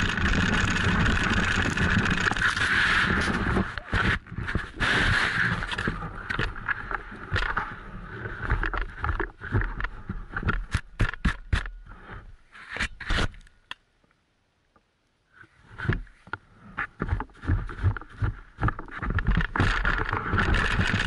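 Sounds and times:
wooden sled scraping over snow: 0:00.0 - 0:10.7, 0:15.6 - 0:21.0.

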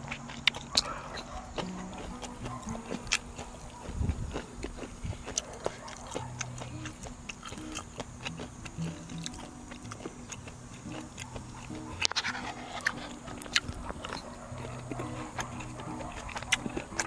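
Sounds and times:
person chewing: 0:00.0 - 0:17.0
soft background music: 0:01.3 - 0:03.6, 0:06.0 - 0:17.0.

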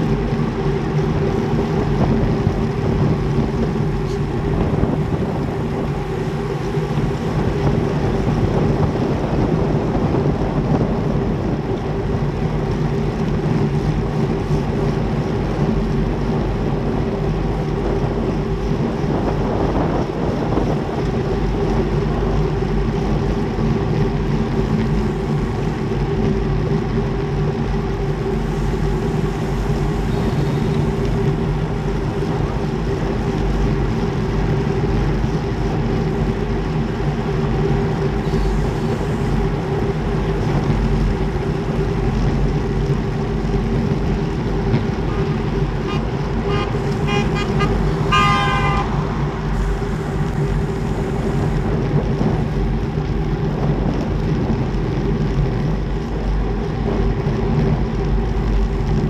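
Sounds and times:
low hum: 0:00.0 - 0:59.0
wind rush over microphone: 0:00.0 - 0:59.0
vehicle horn toots: 0:45.8 - 0:49.0.

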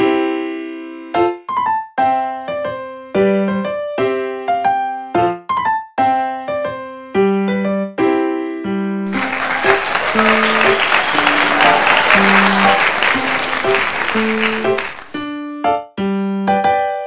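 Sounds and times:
applause: 0:09.1 - 0:15.2
electric piano music: 0:09.1 - 0:17.0.

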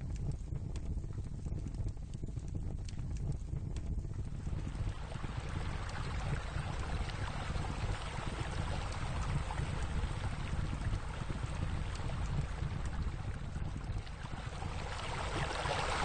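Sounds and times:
water rushing and splashing: 0:14.4 - 0:16.0.

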